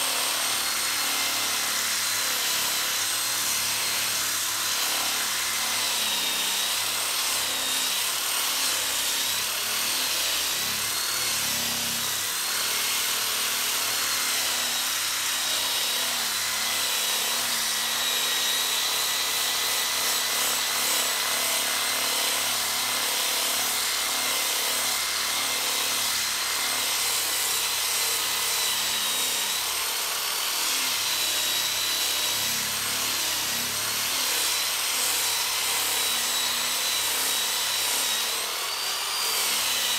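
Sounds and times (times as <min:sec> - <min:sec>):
electric drill whine: 0:00.0 - 0:39.9.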